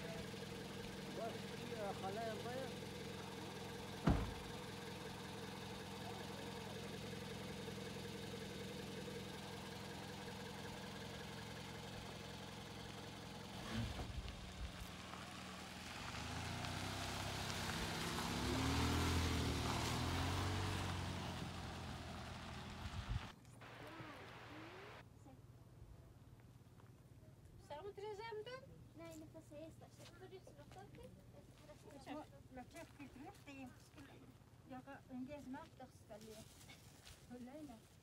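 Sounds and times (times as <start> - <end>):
car engine: 0.0 - 25.0
tyres on dirt: 0.0 - 25.0.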